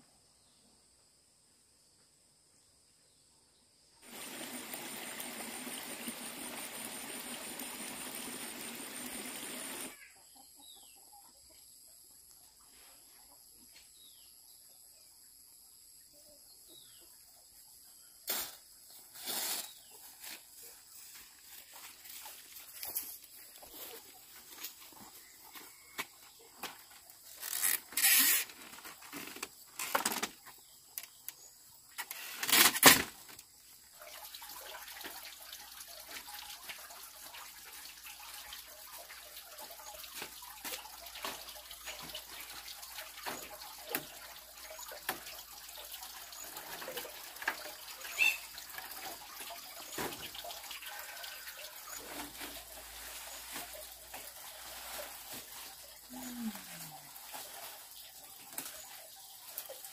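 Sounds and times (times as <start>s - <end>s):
water splashing: 4.0s - 9.9s
water trickling: 4.0s - 10.0s, 33.4s - 59.9s.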